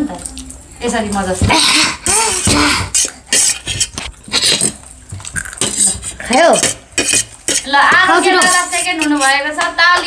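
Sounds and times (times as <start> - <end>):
spoon clinking on metal plate: 6.5 - 9.4.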